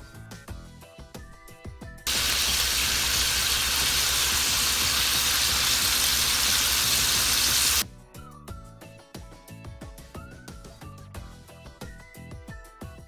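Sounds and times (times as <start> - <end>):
beef sizzling in frying pan: 2.1 - 7.8.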